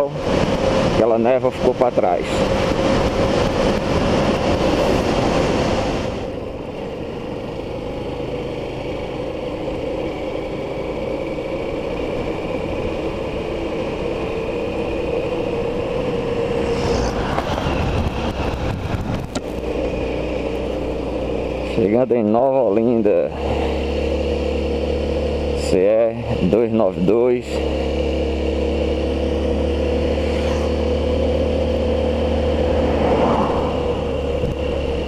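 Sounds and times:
motorcycle engine cruising: 0:00.0 - 0:35.0
wind on microphone: 0:15.8 - 0:19.5.

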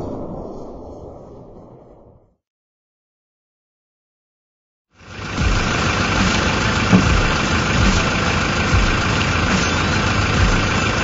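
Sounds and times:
outboard motor running: 0:05.0 - 0:11.0
low thuds: 0:06.8 - 0:08.1.

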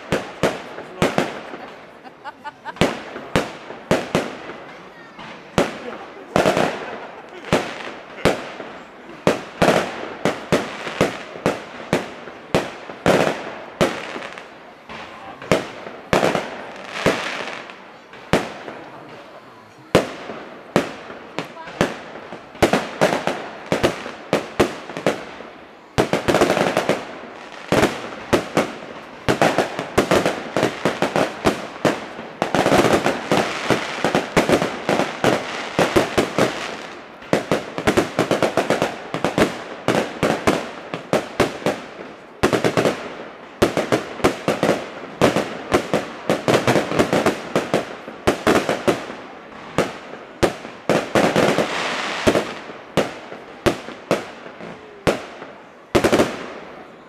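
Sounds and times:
firework crackling: 0:00.0 - 0:57.0.

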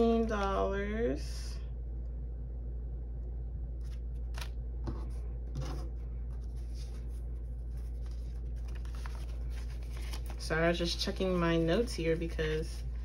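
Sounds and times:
steady low hum: 0:00.0 - 0:13.0
banknotes rustling: 0:06.3 - 0:13.0.

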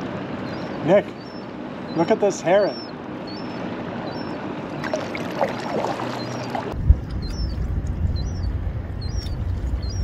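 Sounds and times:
paddle splashing water: 0:04.8 - 0:06.8
low rumble: 0:06.7 - 0:10.0.

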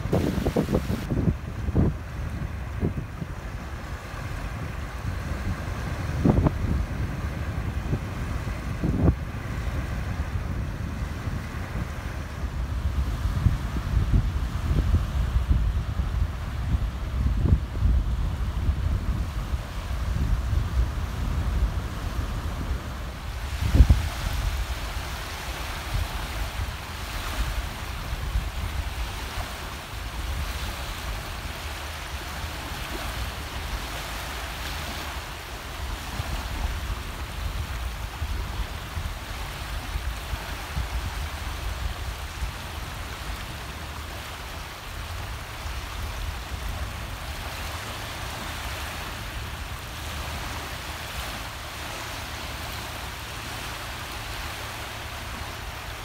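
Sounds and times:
small waves washing on beach: 0:00.0 - 0:56.0
wind rumble on microphone: 0:00.0 - 0:56.0.

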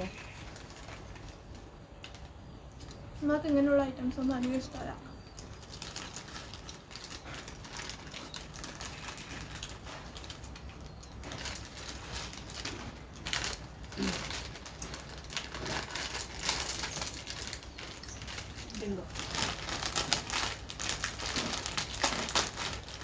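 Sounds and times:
plastic packets crinkling: 0:00.0 - 0:23.0
chips being crunched: 0:05.4 - 0:23.0
packet tearing open: 0:05.6 - 0:23.0.

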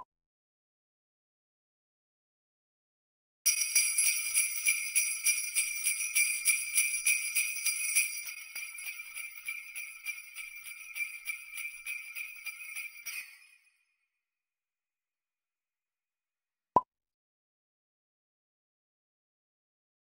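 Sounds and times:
sleigh bells jingling: 0:03.5 - 0:13.8.

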